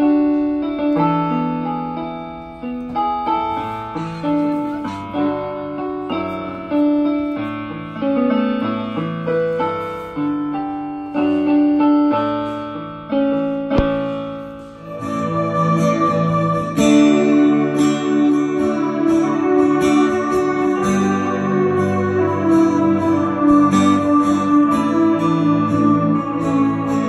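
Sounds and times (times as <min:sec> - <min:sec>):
electronic keyboard piano chords: 0:00.0 - 0:27.0
sharp click: 0:13.8 - 0:14.2.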